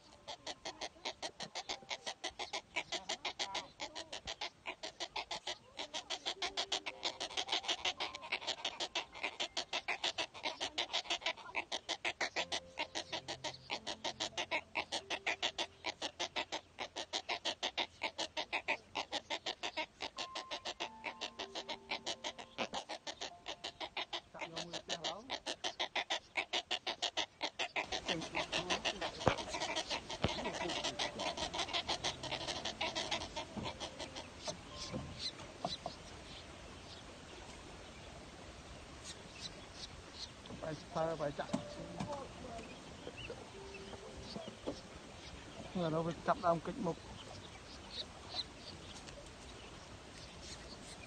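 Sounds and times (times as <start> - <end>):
nestling birds clicking calls: 0.0 - 37.6, 39.0 - 51.0.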